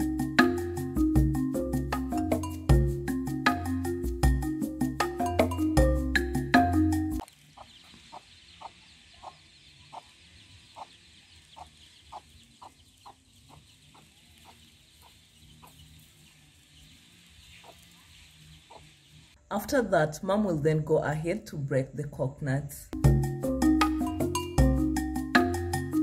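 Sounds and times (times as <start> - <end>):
marimba-like background music: 0.0 - 7.2, 23.0 - 26.0
hen clucking: 7.4 - 19.8.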